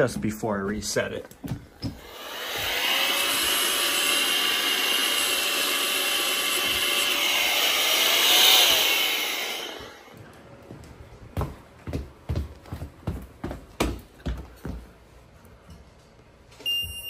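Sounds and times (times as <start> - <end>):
electric blower whining: 1.8 - 10.1.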